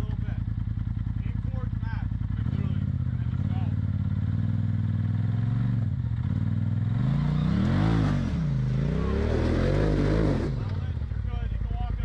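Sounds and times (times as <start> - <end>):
utility vehicle engine revving: 2.3 - 11.6.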